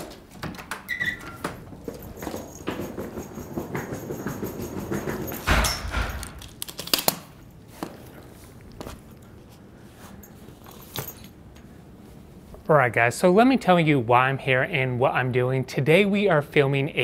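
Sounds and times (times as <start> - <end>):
suitcase wheels rattling: 0.1 - 6.6
footsteps on hard floor: 1.4 - 6.4, 7.7 - 9.1
heavy door thudding shut: 5.4 - 6.4.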